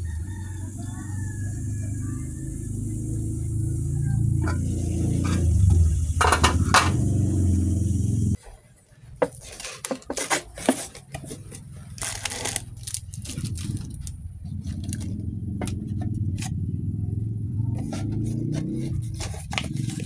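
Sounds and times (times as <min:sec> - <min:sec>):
low hum: 0:00.0 - 0:08.4, 0:11.9 - 0:20.0
plastic packet crinkling: 0:09.3 - 0:15.2.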